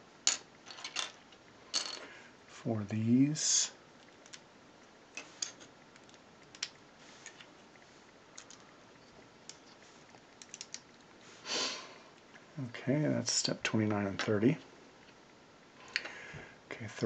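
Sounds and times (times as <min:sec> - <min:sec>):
plastic bricks clicking: 0:05.4 - 0:06.8, 0:08.4 - 0:08.6, 0:10.4 - 0:10.8.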